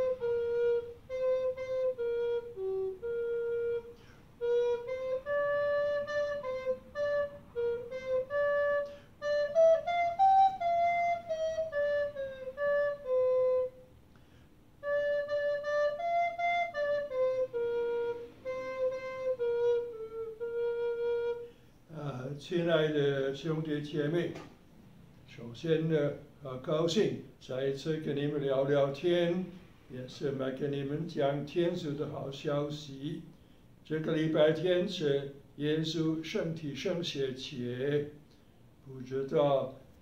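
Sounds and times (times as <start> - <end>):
recorder playing a melody: 0.0 - 14.0, 14.8 - 21.5.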